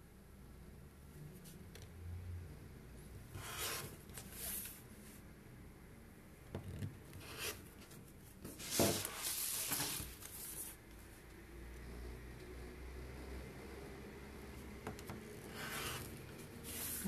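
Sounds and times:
cutting mat scraping on table: 3.4s - 4.6s, 15.4s - 17.0s.

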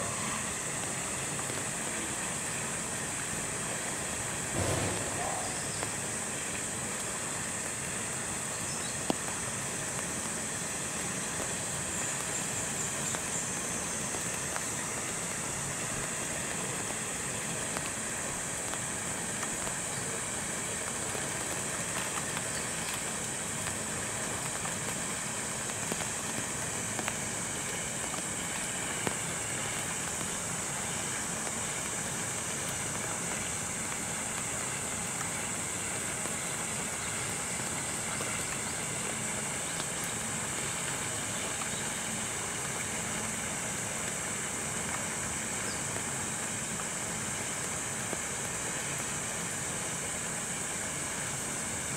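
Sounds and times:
constant high-pitched tone: 0.0s - 3.9s
steady rain hiss: 0.0s - 51.9s.

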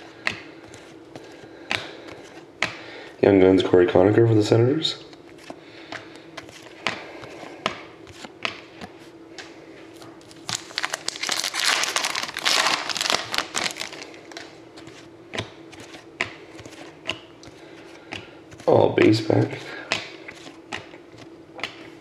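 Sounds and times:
trading cards clicking and shuffling: 5.1s - 22.0s
foil wrapper tearing and crinkling: 10.3s - 14.5s.

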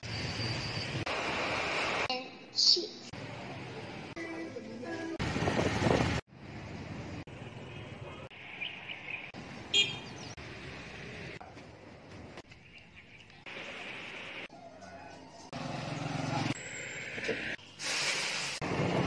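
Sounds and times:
street traffic: 0.0s - 19.0s
vehicle horn toot: 9.7s - 10.1s.

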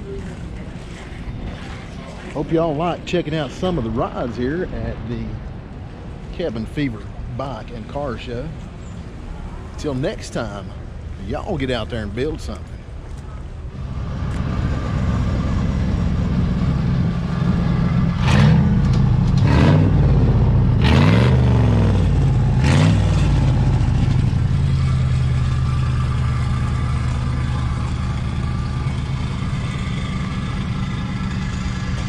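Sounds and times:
car engine running: 13.8s - 32.0s.

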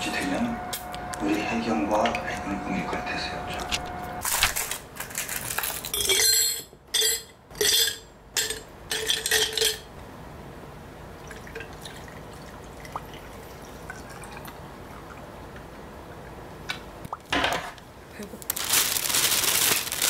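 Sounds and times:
liquid pouring into glass: 11.2s - 15.2s.

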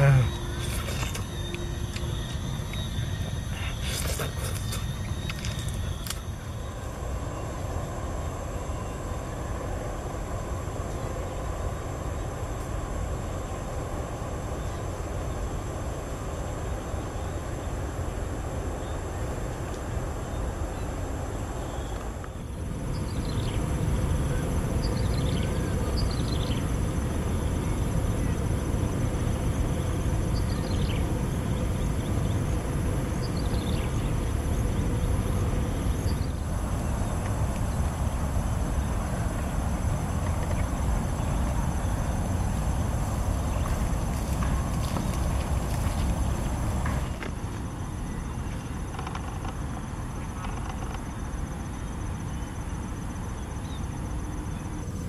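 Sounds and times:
bird chirps: 0.0s - 6.8s
high-pitched insect drone: 0.0s - 19.3s, 20.2s - 55.0s
wind rumble on microphone: 0.0s - 55.0s.

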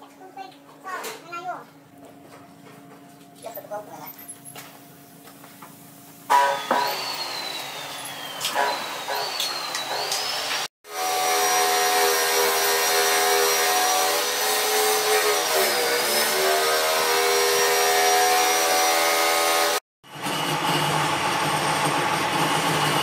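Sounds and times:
lathe motor humming: 6.3s - 10.7s.

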